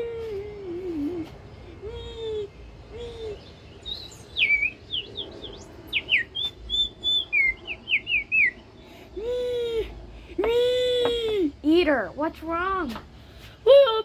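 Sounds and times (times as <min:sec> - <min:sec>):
child wailing: 0:00.0 - 0:03.5, 0:09.2 - 0:11.5
toy bird whistle chirping: 0:03.8 - 0:08.6.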